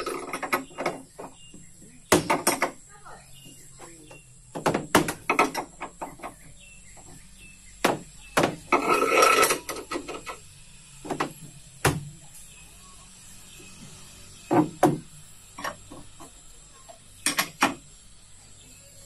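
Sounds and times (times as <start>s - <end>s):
hammering on wood: 0.5s - 2.8s, 4.1s - 6.4s, 7.8s - 8.7s, 11.0s - 12.2s, 14.5s - 15.1s.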